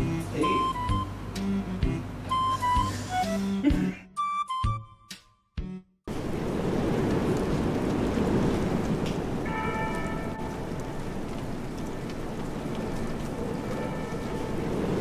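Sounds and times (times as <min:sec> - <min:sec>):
steady rain hiss: 0:06.1 - 0:15.0.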